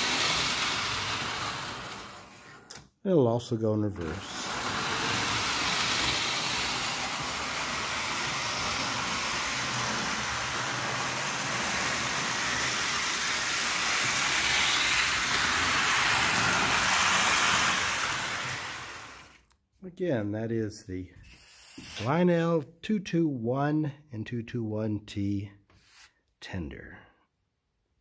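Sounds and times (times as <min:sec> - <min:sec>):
toy train motor whirring: 0:00.0 - 0:02.8, 0:04.0 - 0:19.5.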